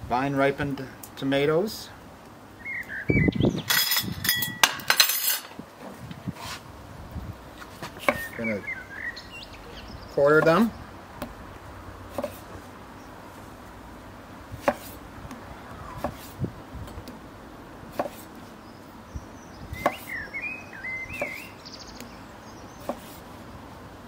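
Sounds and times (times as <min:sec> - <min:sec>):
knife slicing tomatoes: 0:07.8 - 0:08.3, 0:12.1 - 0:12.6, 0:14.6 - 0:15.0, 0:16.0 - 0:16.4, 0:17.9 - 0:18.3, 0:19.8 - 0:20.2, 0:21.2 - 0:21.5, 0:22.8 - 0:23.3.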